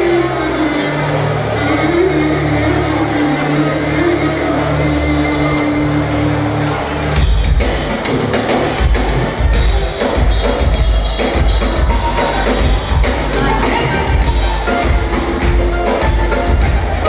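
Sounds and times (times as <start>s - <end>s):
bass guitar: 0.0s - 17.0s
live band music: 0.0s - 17.0s
drum kit beat: 7.2s - 17.0s.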